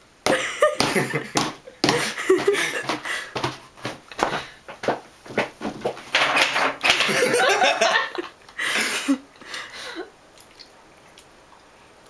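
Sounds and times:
loud laughter: 0.3 - 3.0, 7.1 - 9.2.

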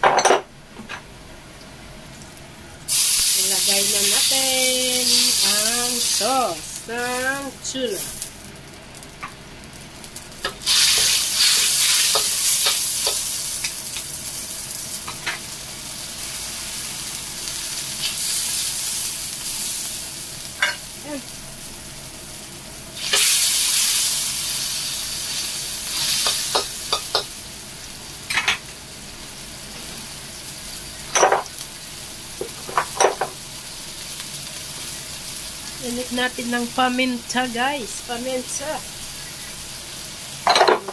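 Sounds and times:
food sizzling in oil: 2.2 - 40.9
spatula scraping and tapping wok: 10.4 - 13.8, 26.0 - 27.3.

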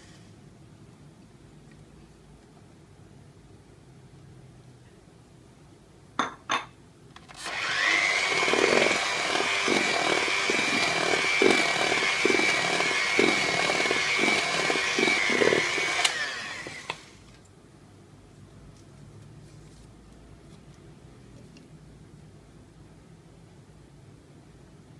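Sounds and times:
electric hand mixer whine: 7.3 - 17.3
beaters scraping metal bowl: 8.0 - 16.1.

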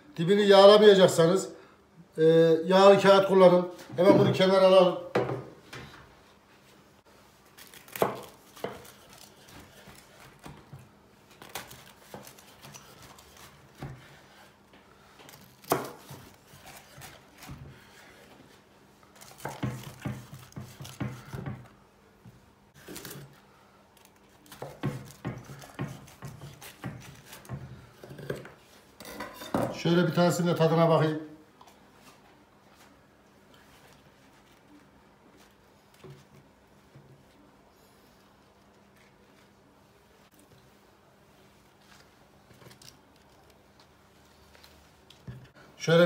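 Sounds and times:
knife crunching pastry: 11.3 - 14.0, 15.3 - 18.3.

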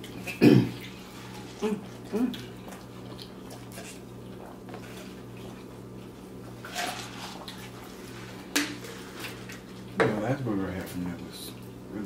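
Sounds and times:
chewing mouth sounds: 1.9 - 4.7.

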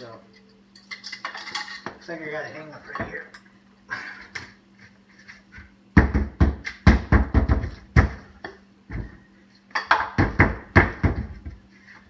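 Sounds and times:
hatchet knocking drywall: 6.0 - 8.3, 9.9 - 11.5.

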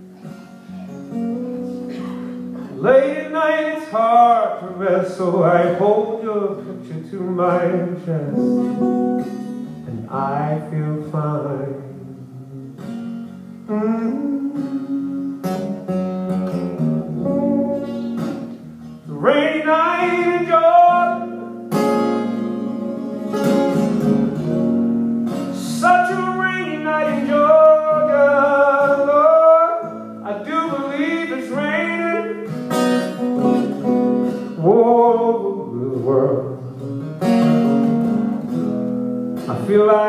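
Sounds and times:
acoustic guitar chords: 0.0 - 40.0
man singing: 2.6 - 9.1, 9.9 - 12.9, 13.6 - 15.7, 19.1 - 23.8, 25.5 - 32.7, 34.4 - 37.0, 39.5 - 40.0.

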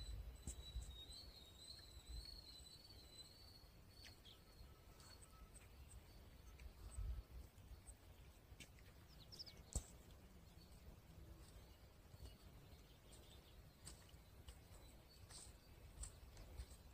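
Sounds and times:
thin high wavering tone: 0.1 - 8.0.

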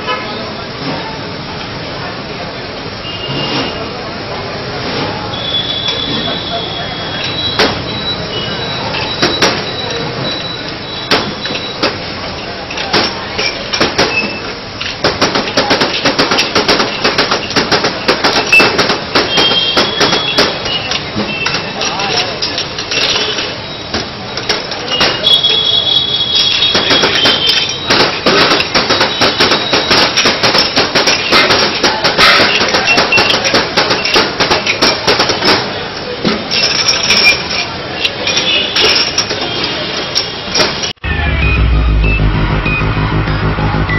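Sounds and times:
glasses clinking and knocking: 8.9 - 23.6, 26.4 - 35.6, 36.4 - 40.9.

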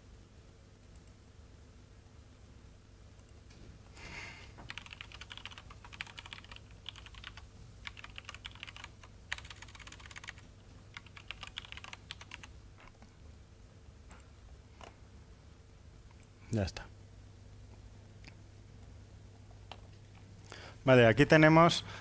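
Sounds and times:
fast typing on laptop keyboard: 4.6 - 12.5.

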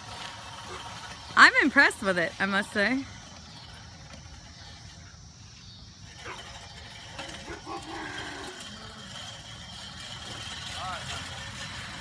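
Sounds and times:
reel mower blades whirring: 0.0 - 12.0.

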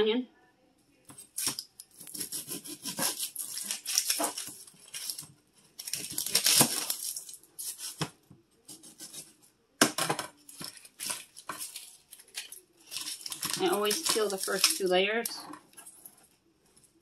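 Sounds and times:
knife cutting onion: 1.1 - 5.2, 5.8 - 10.0
onion skin crackling: 1.1 - 9.4, 10.4 - 16.2.

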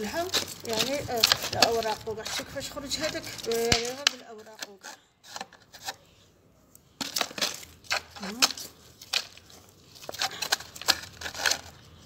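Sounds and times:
plant containers and soil clicking: 0.0 - 6.0, 6.7 - 12.0.

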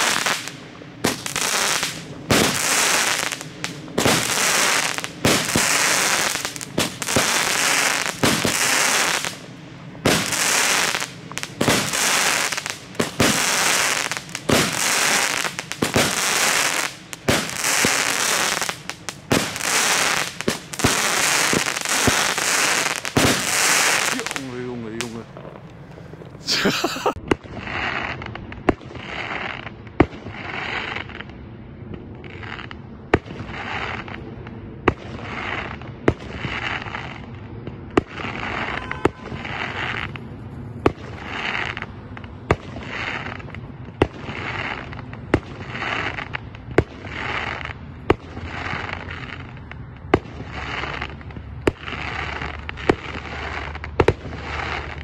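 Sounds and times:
hissing crackle of fireworks: 0.0 - 55.0
firework launch pops: 50.1 - 55.0.

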